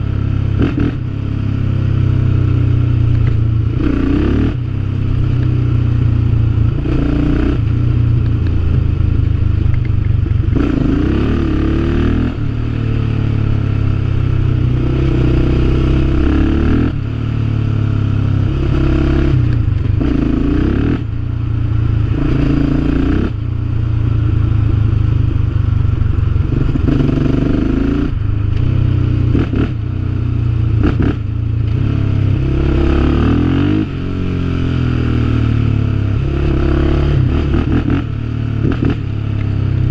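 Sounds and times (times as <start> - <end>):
quad engine revving through gears: 10.5 - 12.4, 14.8 - 17.0, 26.5 - 28.7, 30.8 - 34.0, 36.2 - 39.1.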